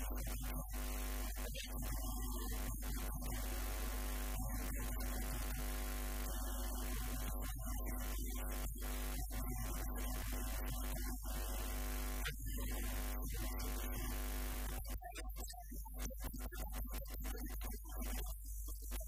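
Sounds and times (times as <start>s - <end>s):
electrical mains hum: 0.0s - 15.1s.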